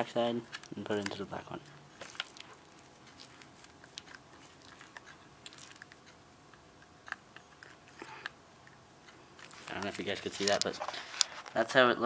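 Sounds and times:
speaker wire clicks and rustles: 0.0 - 6.2, 9.1 - 11.8.

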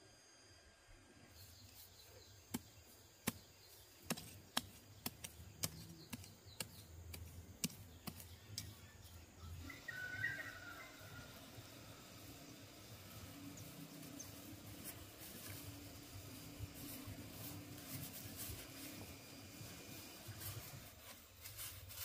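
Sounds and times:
straw crackling: 1.8 - 9.1
machete chopping into straw and soil: 2.5 - 8.7.

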